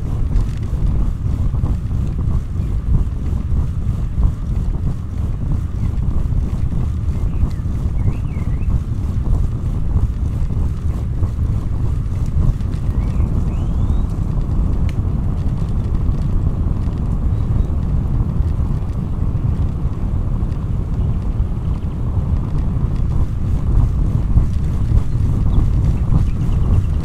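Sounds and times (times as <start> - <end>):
wind rumbling on microphone: 0.0 - 27.0.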